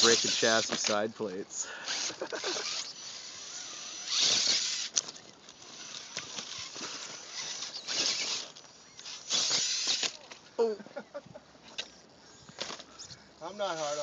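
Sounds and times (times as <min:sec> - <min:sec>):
bursts of hiss: 0:00.0 - 0:05.0, 0:05.7 - 0:10.3
rc car scraping on rock: 0:00.0 - 0:10.5, 0:11.7 - 0:14.0.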